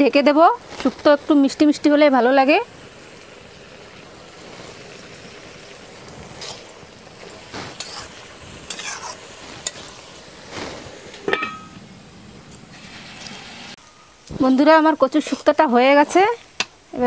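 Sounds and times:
food sizzling: 0.0 - 17.0
spatula scraping metal pan: 7.5 - 10.0.

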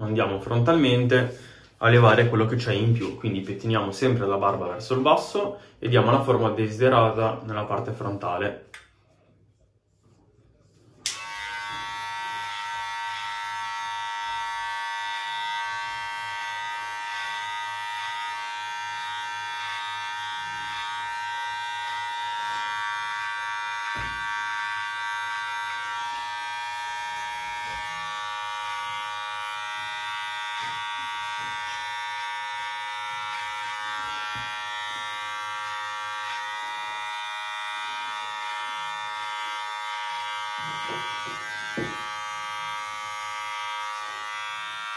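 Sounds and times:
electric hair clipper buzzing: 11.0 - 44.9.

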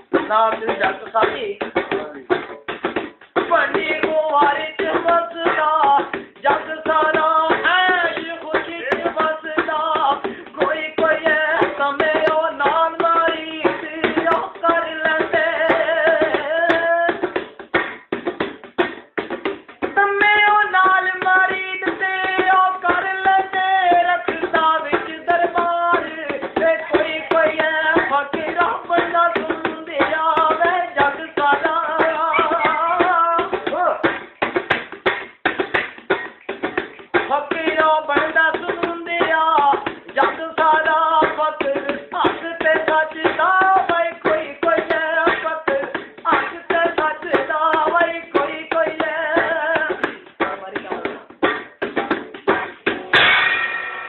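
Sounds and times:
fast percussion beat: 0.0 - 54.0.

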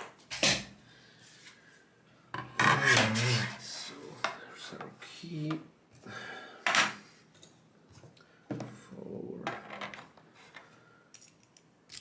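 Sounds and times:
metal parts jangling: 11.2 - 12.0.

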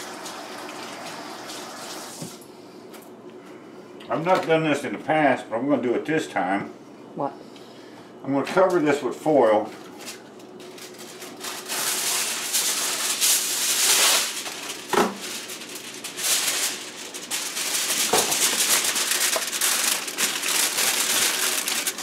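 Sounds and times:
kitchen foil rustling and crinkling: 9.6 - 22.0.

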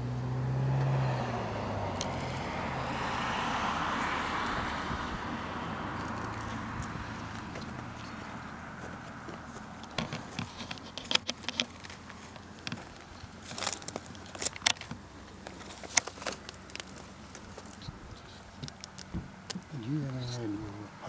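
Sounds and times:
sharp clicks and crackles: 9.8 - 20.2.

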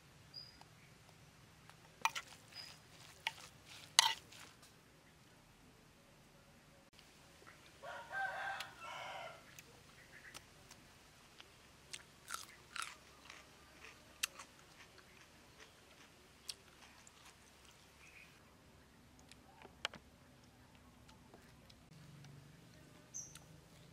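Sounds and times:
person chewing salad: 1.7 - 4.7, 11.4 - 18.2
rooster crowing: 7.8 - 9.5.

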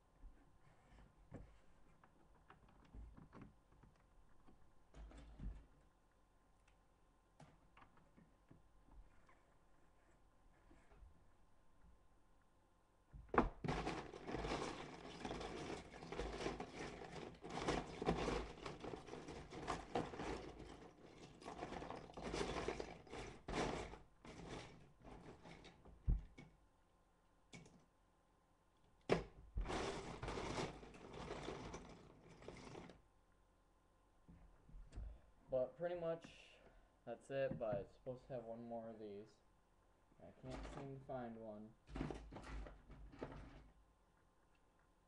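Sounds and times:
plastic bricks clattering: 13.4 - 26.4, 29.1 - 33.0.

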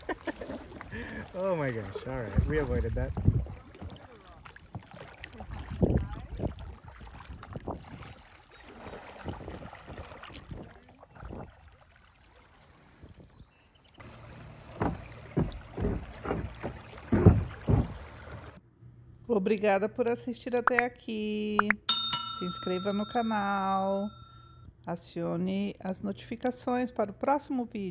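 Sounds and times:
paddles splashing in water: 0.0 - 18.6
wind buffeting microphone: 2.2 - 3.8, 5.4 - 8.2.

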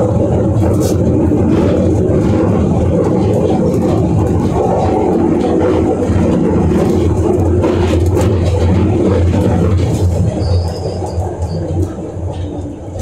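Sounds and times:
subway train rumbling in tunnel: 0.0 - 13.0
faint high wheel squeal: 10.3 - 11.8.

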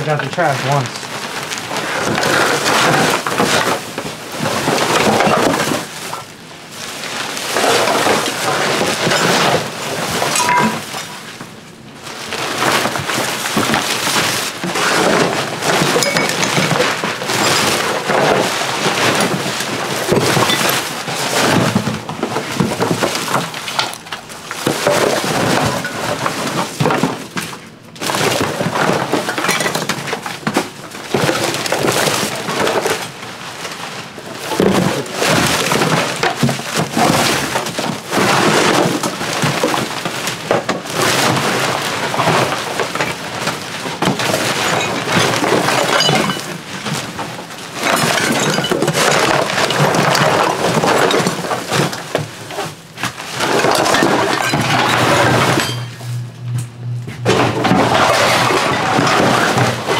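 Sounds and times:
rubbish clattering and crinkling: 0.0 - 59.9
shovel scraping a hard floor: 13.6 - 19.4, 53.3 - 56.6, 57.3 - 59.9.

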